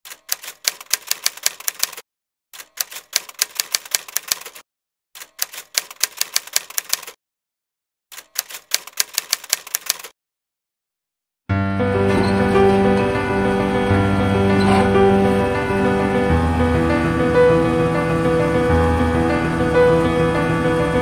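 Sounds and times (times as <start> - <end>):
typewriter key clicks: 0.1 - 2.0, 2.6 - 4.6, 5.2 - 7.2, 8.2 - 10.1.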